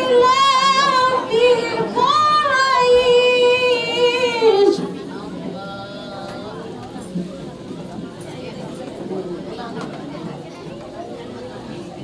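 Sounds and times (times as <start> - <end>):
woman singing long notes: 0.0 - 4.8.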